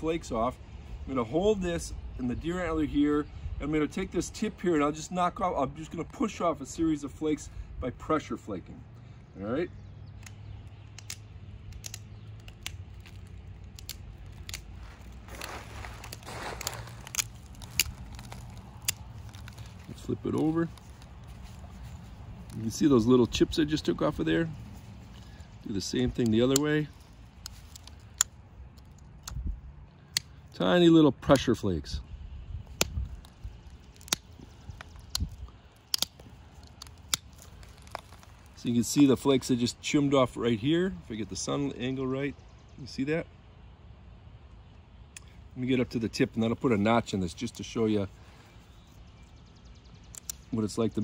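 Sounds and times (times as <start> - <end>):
sharp clicks of stone flaking: 10.2 - 23.9, 32.7 - 39.1, 50.0 - 51.0
scratchy rustle: 14.3 - 22.6.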